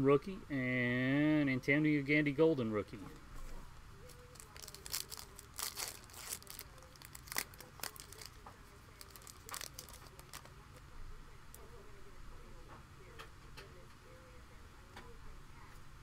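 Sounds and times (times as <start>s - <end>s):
foil wrapper crinkling and tearing: 4.1s - 10.5s.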